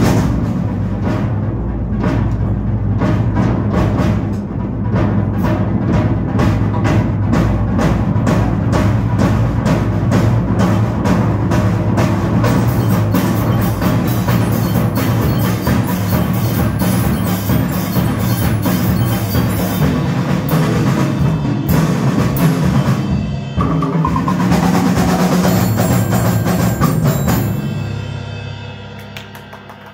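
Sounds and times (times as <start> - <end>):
percussion ensemble playing: 0.0 - 29.9
low note ringing: 12.4 - 21.0.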